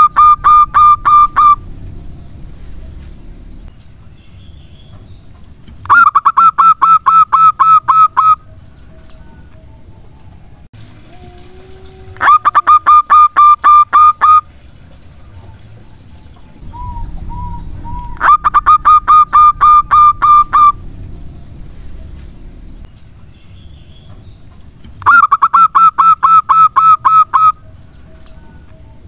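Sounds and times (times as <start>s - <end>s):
dove staccato song: 0.0s - 4.0s, 4.8s - 8.5s, 12.2s - 14.7s, 15.4s - 22.9s, 24.1s - 27.6s.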